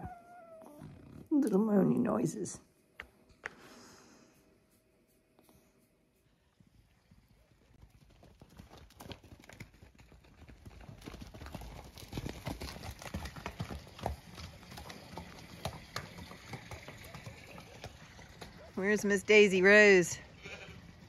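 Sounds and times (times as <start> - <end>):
horse hooves clip-clopping: 4.7 - 21.0.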